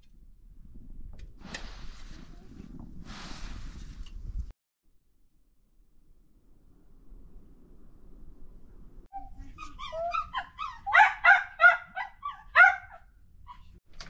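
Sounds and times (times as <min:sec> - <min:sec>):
dog yelping: 0:09.2 - 0:13.8.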